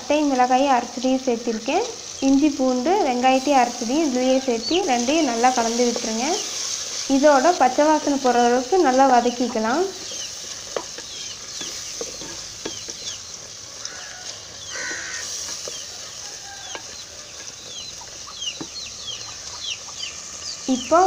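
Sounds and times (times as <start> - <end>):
food frying hiss: 0.0 - 21.0
chicks peeping: 8.8 - 21.0.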